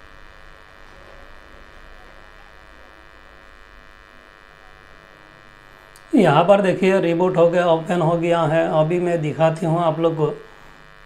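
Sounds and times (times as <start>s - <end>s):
buzzy electrical hum: 0.0s - 11.0s.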